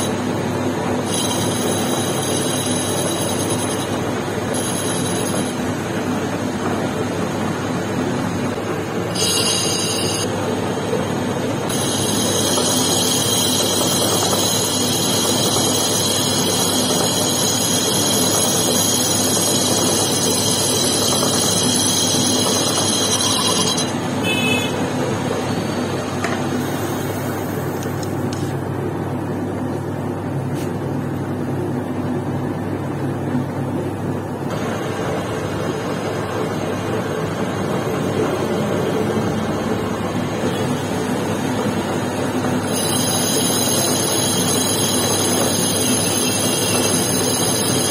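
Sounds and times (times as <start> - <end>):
metal lathe running: 0.0 - 28.5, 34.5 - 47.9
high-pitched cutting tool squeal: 1.0 - 5.6, 9.1 - 10.3, 11.7 - 24.8, 42.6 - 47.9.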